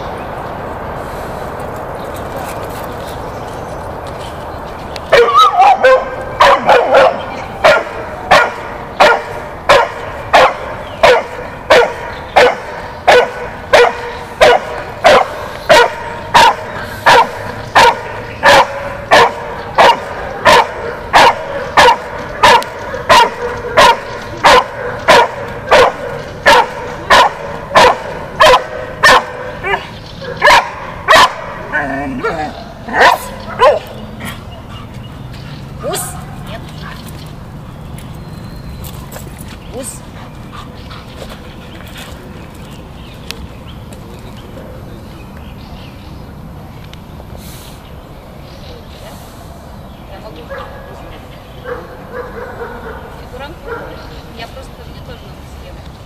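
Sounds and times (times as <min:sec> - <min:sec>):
dog barking rhythmically: 0:05.2 - 0:31.7, 0:32.9 - 0:34.0.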